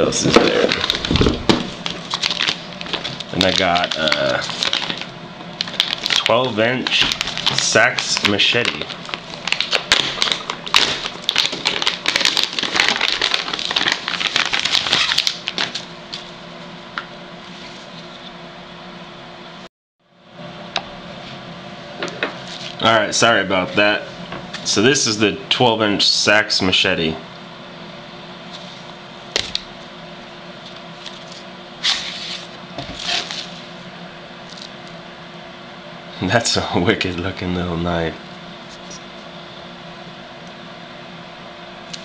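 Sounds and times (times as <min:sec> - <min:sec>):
plastic wrapping crinkling: 0:00.2 - 0:16.3, 0:30.6 - 0:33.7.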